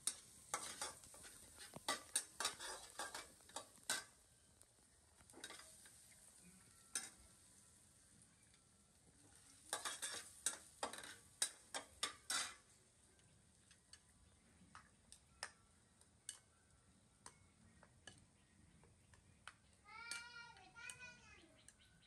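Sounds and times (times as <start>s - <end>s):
spatula scraping steel wok: 0.0s - 4.2s, 5.3s - 6.3s, 9.3s - 12.8s.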